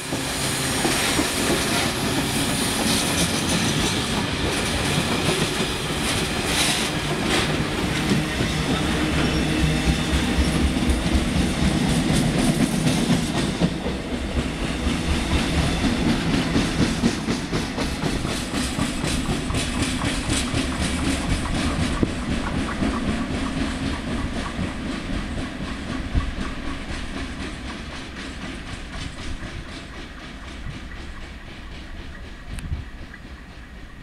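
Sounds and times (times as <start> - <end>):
train rumble and hiss: 0.0 - 34.0
train wheels clacking over rail joints: 0.0 - 34.0.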